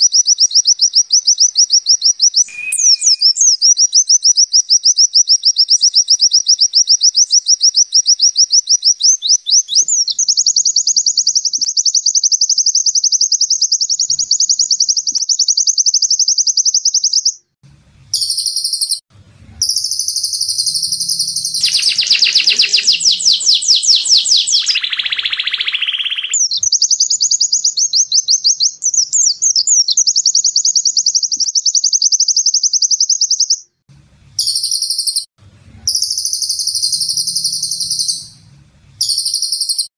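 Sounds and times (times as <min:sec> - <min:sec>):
bird singing high trills: 0:00.0 - 0:04.0, 0:18.1 - 0:19.0, 0:19.6 - 0:33.6, 0:34.4 - 0:35.3, 0:35.9 - 0:39.9
bird warbling: 0:19.6 - 0:26.4.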